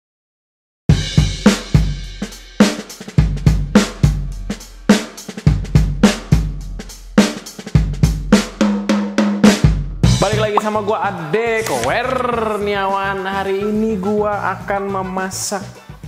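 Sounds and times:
drum kit beat: 0:00.9 - 0:10.9.

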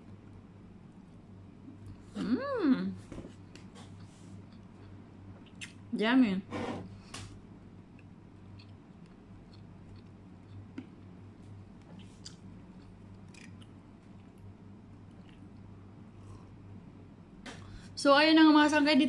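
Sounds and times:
steady low hum: 0:00.0 - 0:19.0
quiet chewing: 0:01.6 - 0:02.3, 0:03.5 - 0:05.8, 0:07.9 - 0:16.6
soft mouth clicks: 0:04.5 - 0:05.8.

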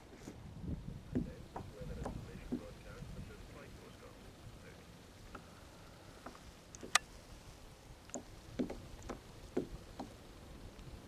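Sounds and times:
knocks and taps on kayak: 0:01.1 - 0:02.7, 0:08.1 - 0:10.2.

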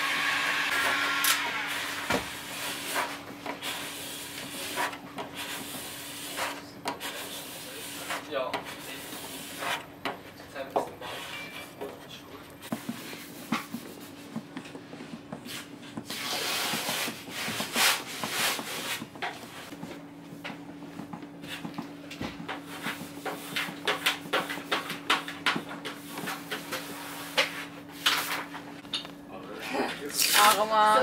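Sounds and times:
squeegee scraping vinyl: 0:00.1 - 0:10.0, 0:15.3 - 0:19.7, 0:22.5 - 0:28.6.

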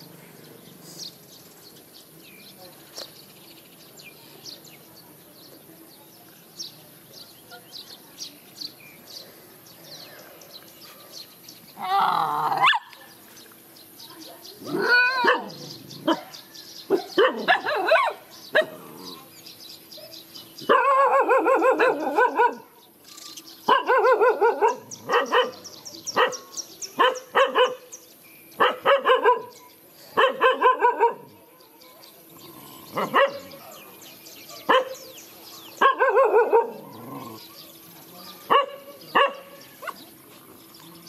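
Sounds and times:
dogs yapping: 0:14.7 - 0:19.1, 0:20.7 - 0:22.7, 0:32.9 - 0:33.8, 0:35.8 - 0:37.4.

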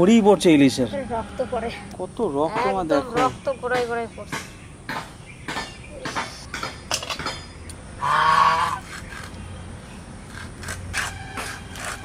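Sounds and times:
animal call: 0:08.0 - 0:09.3.

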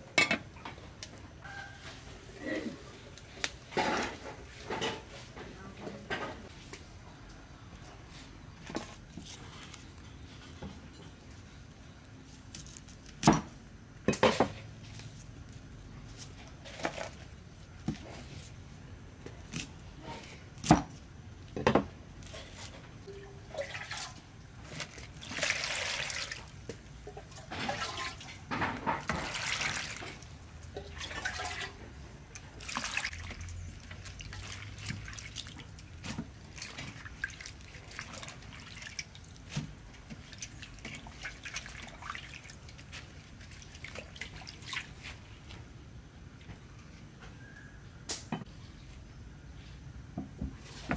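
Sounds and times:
water sloshing in metal bowl: 0:22.2 - 0:45.4.

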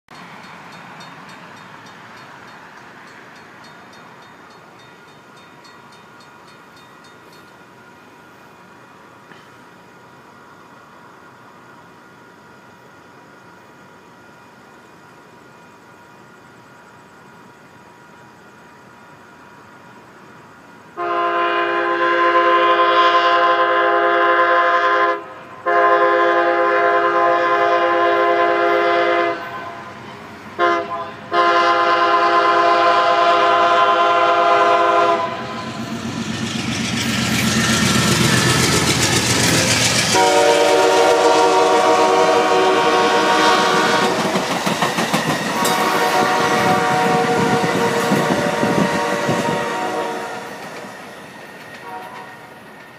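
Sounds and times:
train passing rumble: 0:00.1 - 0:52.9
train air horn blasts: 0:21.0 - 0:35.8, 0:39.4 - 0:44.4, 0:45.5 - 0:50.7, 0:51.8 - 0:52.6
wheels clattering over rail joints: 0:35.7 - 0:41.6, 0:43.7 - 0:46.3.

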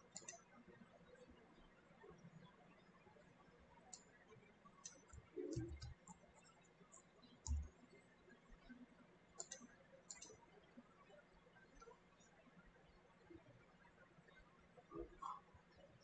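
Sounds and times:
computer mouse clicks: 0:00.0 - 0:00.5, 0:04.8 - 0:08.0, 0:09.4 - 0:10.5
keyboard key presses: 0:04.8 - 0:06.0.

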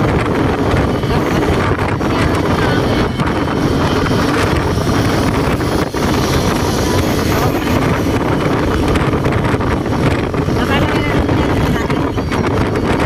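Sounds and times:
car road and wind noise: 0:00.0 - 0:13.0
wind rumbling on microphone: 0:00.0 - 0:13.0.

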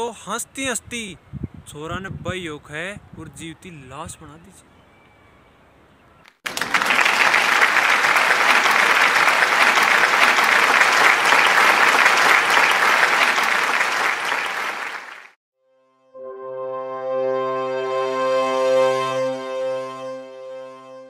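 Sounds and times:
crowd applauding: 0:06.4 - 0:15.4.

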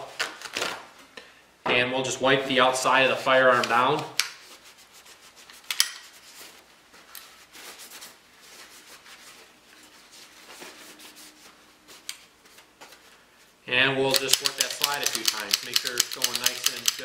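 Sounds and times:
towel rubbing on pistol: 0:03.1 - 0:12.0.

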